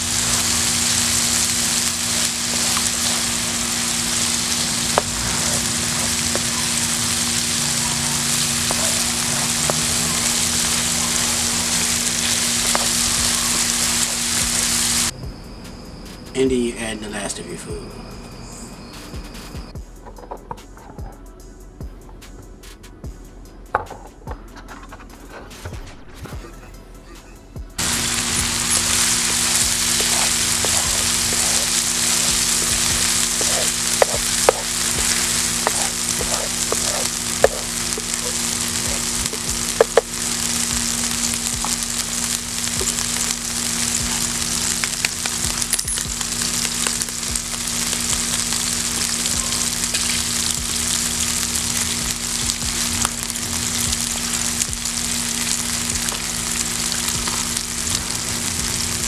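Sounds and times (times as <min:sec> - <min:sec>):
food sizzling in frying pan: 0:00.0 - 0:15.2, 0:27.8 - 0:59.0
spatula scraping pan: 0:28.4 - 0:39.1.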